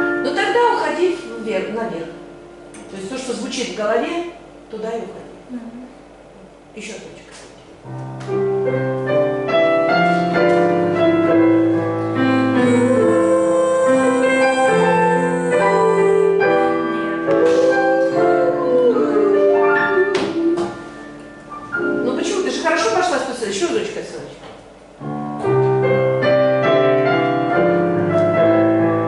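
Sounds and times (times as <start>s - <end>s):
digital piano chords: 0.0s - 3.2s, 7.8s - 23.9s, 24.6s - 29.0s
woman singing with vibrato: 12.4s - 21.0s.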